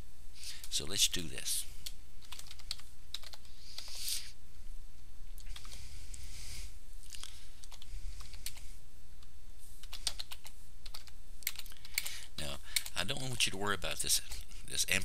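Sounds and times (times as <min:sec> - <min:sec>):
steady low hum: 0:00.0 - 0:15.0
keyboard typing clicks: 0:01.8 - 0:03.5, 0:09.8 - 0:12.1.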